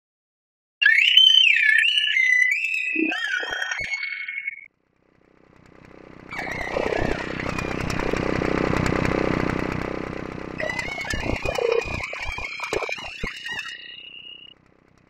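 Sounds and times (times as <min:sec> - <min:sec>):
bird whistling tones: 0:00.8 - 0:04.6
dense pulsing engine-like sound: 0:04.8 - 0:12.4.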